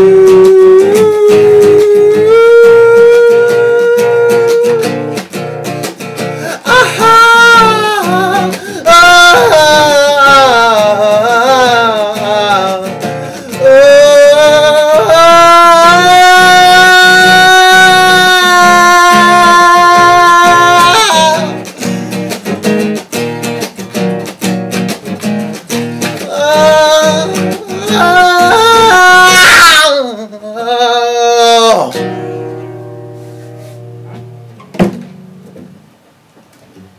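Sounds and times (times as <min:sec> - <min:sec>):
man singing wordless vocals: 0:00.0 - 0:05.1, 0:06.4 - 0:22.2, 0:26.0 - 0:32.2
nylon-string guitar strumming: 0:00.0 - 0:36.9.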